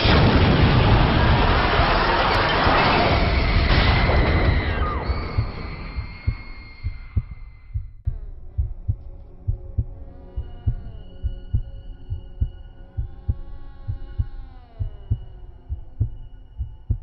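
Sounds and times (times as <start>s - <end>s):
eerie drone of held tones: 2.3s - 17.0s
heartbeat thumps: 5.2s - 17.0s.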